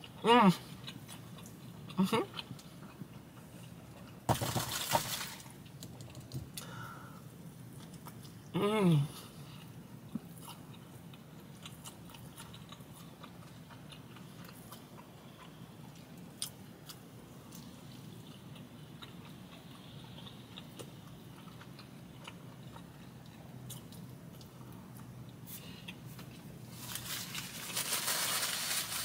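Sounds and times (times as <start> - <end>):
person chewing food: 0.0 - 4.3, 9.4 - 27.5
small clicks and crunches: 26.2 - 29.0.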